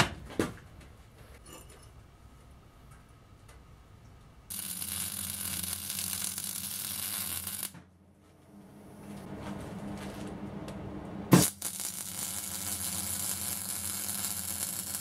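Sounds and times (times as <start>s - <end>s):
electrical hum: 0.7s - 15.0s
arc welding crackling sizzle: 4.5s - 7.8s, 11.3s - 15.0s.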